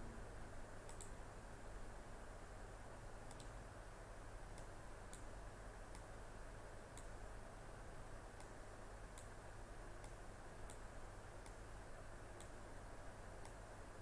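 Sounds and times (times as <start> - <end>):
low hiss and hum: 0.0 - 14.0
computer mouse clicks: 0.9 - 1.2, 3.3 - 3.6, 4.5 - 5.3, 5.9 - 6.1, 6.9 - 7.2, 8.4 - 9.3, 10.0 - 10.8, 12.4 - 12.6, 13.4 - 13.6.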